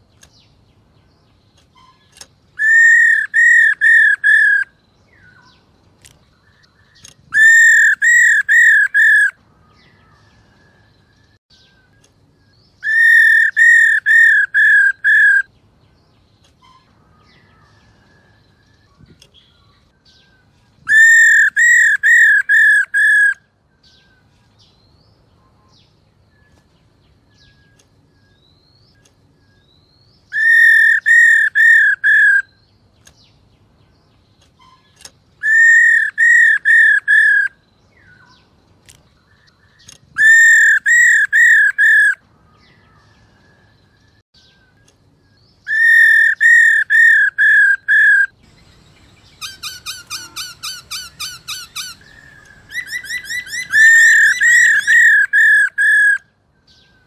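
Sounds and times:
bird call clear arching notes: 45.7s - 56.2s.

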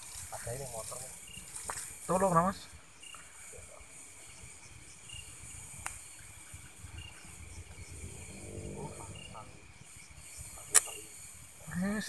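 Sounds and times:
crickets chirring: 0.0s - 12.0s
sharp click: 10.7s - 11.0s.

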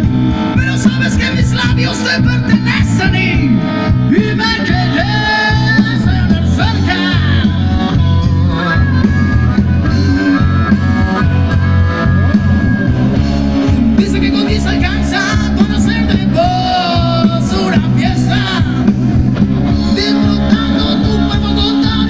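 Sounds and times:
blues-rock band playing: 0.0s - 22.0s
harmonica long notes: 0.0s - 22.0s
man singing: 0.5s - 9.0s, 13.6s - 19.0s, 19.7s - 22.0s.

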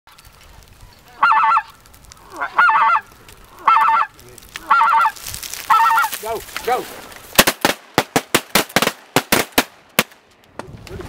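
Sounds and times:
goose call rolling high notes: 1.2s - 6.1s.

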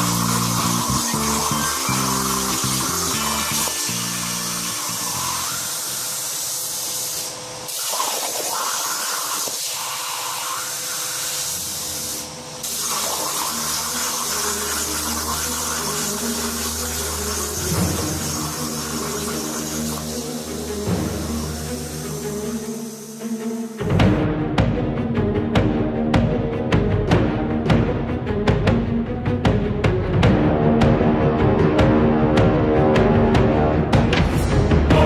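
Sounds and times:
background music: 0.0s - 5.9s, 12.6s - 35.0s
plasma cutter hissing: 0.0s - 23.8s.

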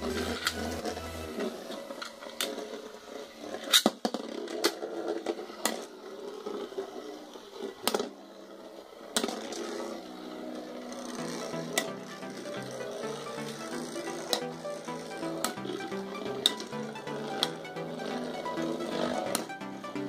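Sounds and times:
spinning tops whirring: 8.8s - 20.0s.

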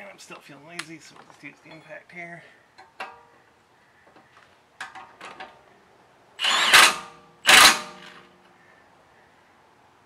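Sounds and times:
impact wrench hammering: 6.4s - 8.2s.

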